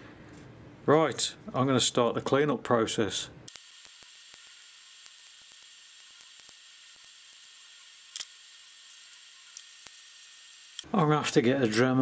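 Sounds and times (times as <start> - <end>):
small clicks and crackles: 3.5 - 10.9.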